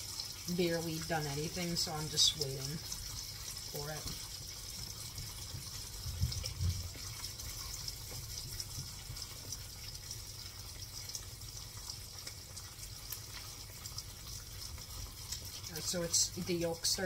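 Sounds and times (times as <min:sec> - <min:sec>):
egg sizzling in pan: 0:00.0 - 0:17.0
soft low thumps: 0:05.2 - 0:07.0.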